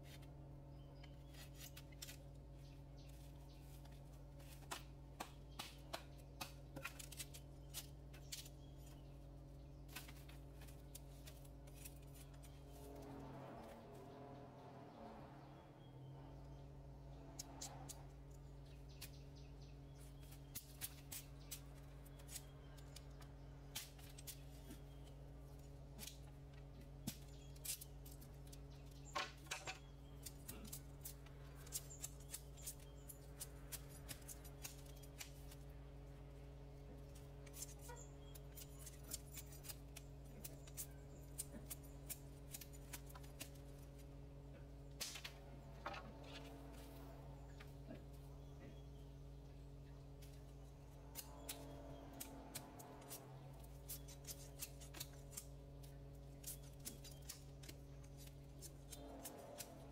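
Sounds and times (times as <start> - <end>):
faint low hum: 0.0 - 59.9
bamboo being cut: 3.1 - 9.0, 9.8 - 13.8, 20.0 - 25.2, 25.9 - 35.8, 36.8 - 44.0, 50.2 - 59.9.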